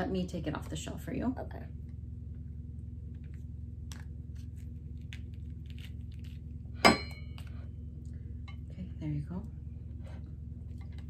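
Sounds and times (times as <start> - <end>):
steady low hum: 0.0 - 11.0
sharp ringing clink: 6.8 - 7.3.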